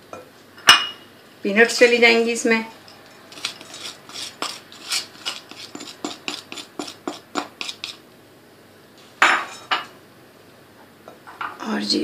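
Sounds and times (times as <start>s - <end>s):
metal spoon scraping a dish: 3.0s - 8.0s
dishware clink: 9.2s - 9.9s.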